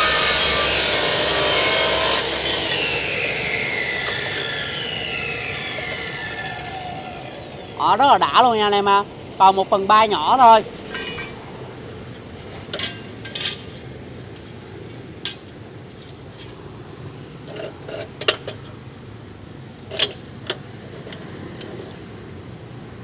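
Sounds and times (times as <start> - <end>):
steel clanking in vise: 10.8 - 11.4, 12.6 - 13.7, 19.9 - 21.8.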